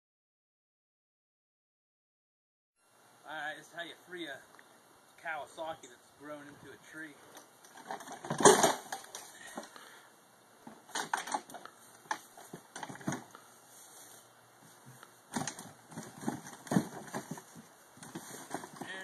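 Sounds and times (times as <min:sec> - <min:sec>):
snowmobile knocks and clatter: 0:15.4 - 0:19.0.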